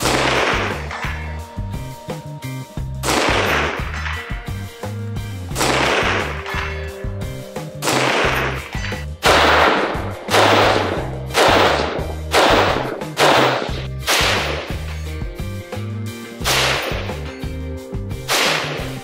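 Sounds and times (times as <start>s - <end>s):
rifle shots: 0.0s - 1.3s, 3.0s - 4.4s, 5.5s - 7.0s, 7.8s - 14.9s, 16.4s - 17.2s, 18.2s - 19.0s
music with pulsing bass: 0.0s - 19.0s.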